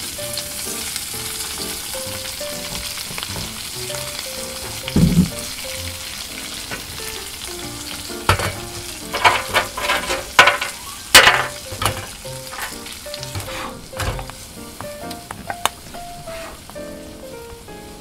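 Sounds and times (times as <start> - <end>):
vegetables sizzling in a frying pan: 0.0 - 18.0
pan clacks and scrapes: 8.3 - 14.4.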